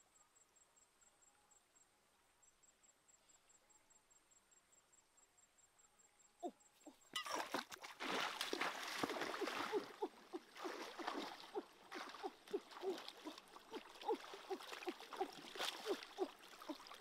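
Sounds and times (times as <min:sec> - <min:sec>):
water splashing and gurgling: 0:07.2 - 0:17.0.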